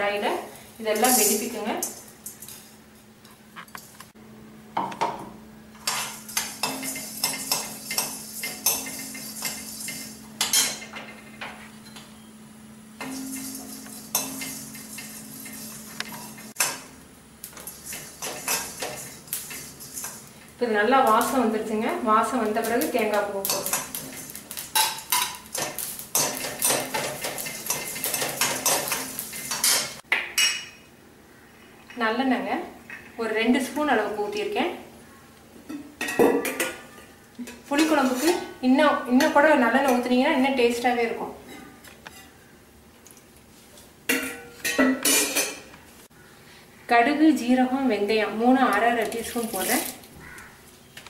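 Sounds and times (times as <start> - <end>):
metal spatula scraping a pan: 5.8 - 10.8, 13.0 - 16.8, 17.6 - 20.3, 37.7 - 38.5.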